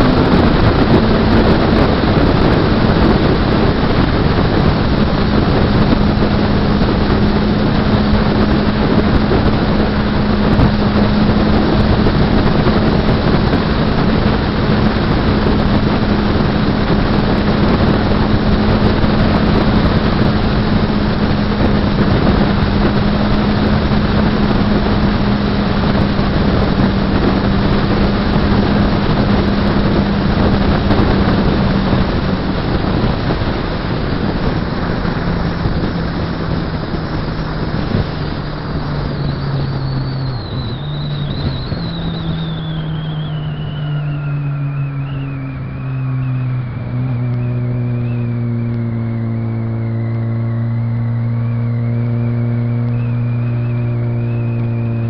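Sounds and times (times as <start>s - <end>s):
motorcycle engine droning: 0.0s - 55.0s
wind buffeting microphone: 0.0s - 55.0s.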